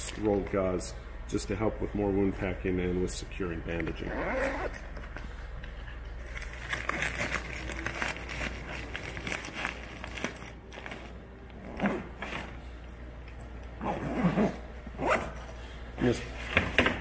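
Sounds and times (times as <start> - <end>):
fabric bag rustling and crinkling: 6.2 - 12.6.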